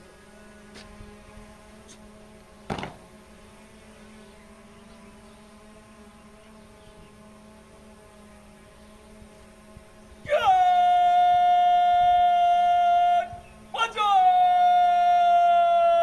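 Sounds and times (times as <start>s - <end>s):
machine hum: 0.0s - 16.0s
sharp knock: 2.7s - 3.0s.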